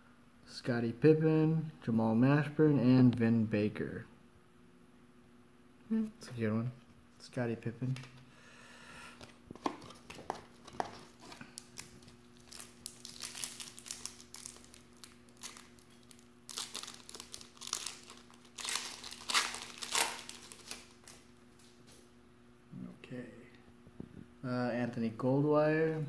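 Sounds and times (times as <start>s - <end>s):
card pack wrapper crinkling and tearing: 9.5s - 21.7s.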